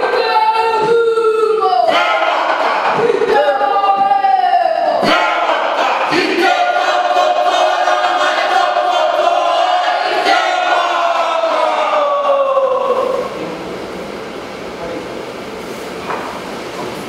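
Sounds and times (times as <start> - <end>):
students singing in unison: 1.9 - 3.4, 5.0 - 13.4.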